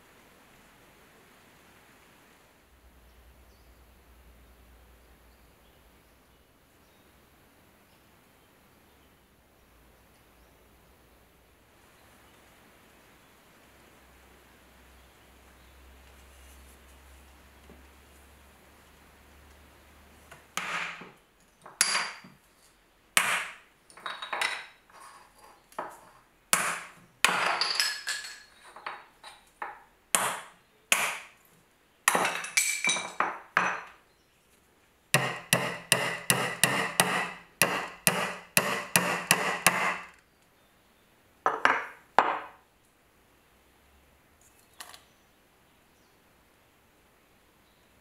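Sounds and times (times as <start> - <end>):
hammer striking wood: 20.6 - 22.3, 23.2 - 23.6, 26.5 - 27.7, 30.2 - 31.3, 35.2 - 40.2.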